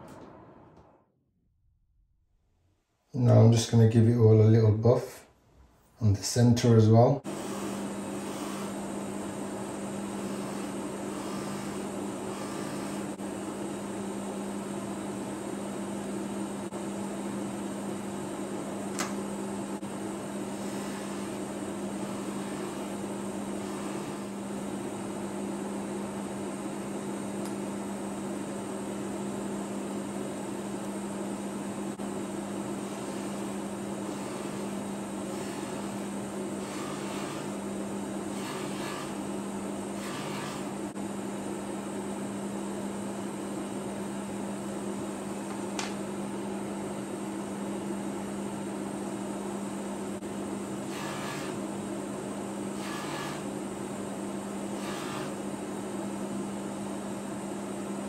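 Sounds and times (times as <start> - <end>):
polishing motor humming: 7.2 - 13.2, 20.3 - 24.6, 31.9 - 39.3, 39.9 - 41.0, 50.8 - 51.6, 52.8 - 53.6, 54.8 - 55.4.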